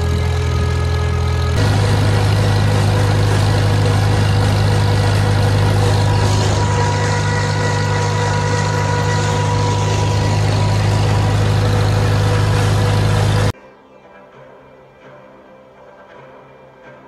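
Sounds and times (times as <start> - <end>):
tractor engine running: 0.0 - 13.6.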